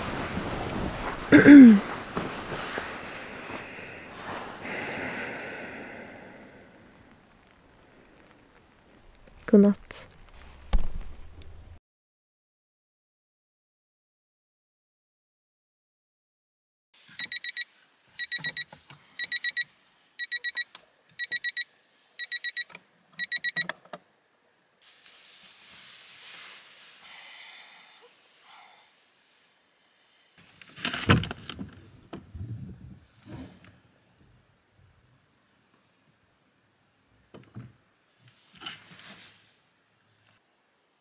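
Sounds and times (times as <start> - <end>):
rustling: 0.0 - 4.6, 6.9 - 11.8, 24.8 - 27.4, 38.3 - 39.7
thump and knocks: 10.7 - 11.3
alarm beeping: 17.2 - 17.6, 18.2 - 19.6, 20.2 - 21.6, 22.2 - 23.6.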